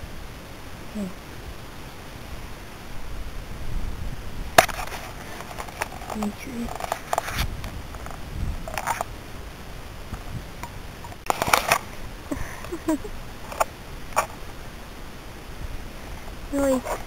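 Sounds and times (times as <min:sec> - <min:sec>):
plastic toys rustling in grass: 0:03.8 - 0:17.0.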